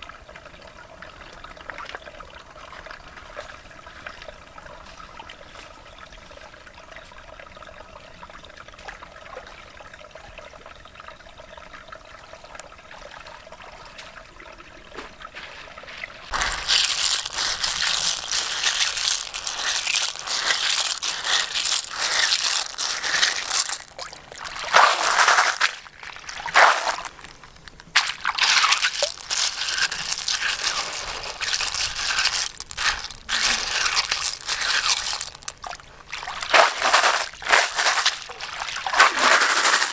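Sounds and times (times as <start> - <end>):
water sloshing and splashing: 14.9 - 39.9.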